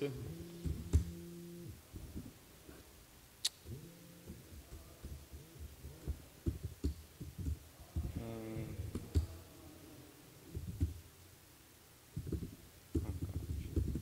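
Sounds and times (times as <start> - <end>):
laptop keyboard typing: 4.3 - 9.4, 12.2 - 14.0.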